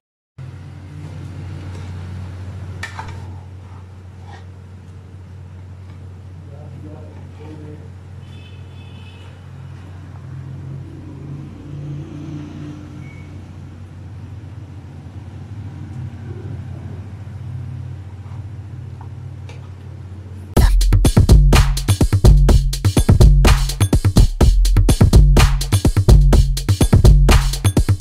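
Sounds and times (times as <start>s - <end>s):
electronic music with drum-machine beat: 20.6s - 28.0s.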